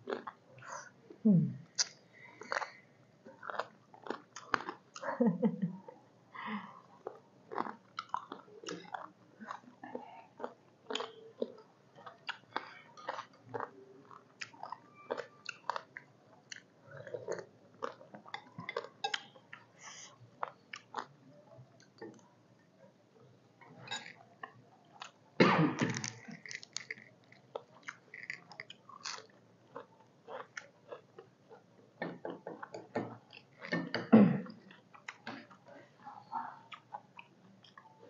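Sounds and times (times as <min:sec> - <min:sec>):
people chewing and eating: 0:00.0 - 0:38.0
mouth clicks and smacks: 0:01.7 - 0:02.8.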